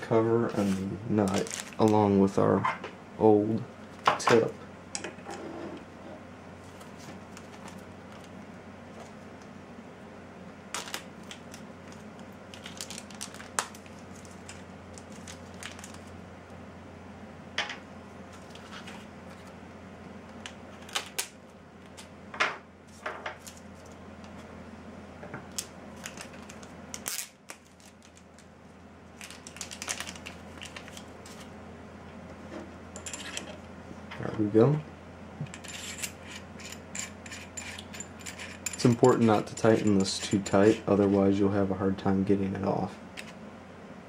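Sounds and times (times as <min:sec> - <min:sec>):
steady low hum: 0:00.0 - 0:44.0
plastic bag crinkling: 0:00.6 - 0:02.1, 0:10.8 - 0:16.2, 0:29.1 - 0:31.4.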